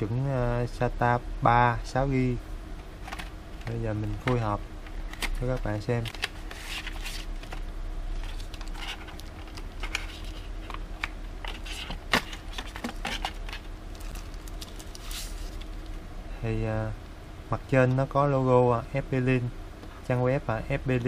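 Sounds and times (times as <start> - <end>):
faint steady hum: 0.0 - 21.0
packaging rustling and crinkling: 3.1 - 16.0.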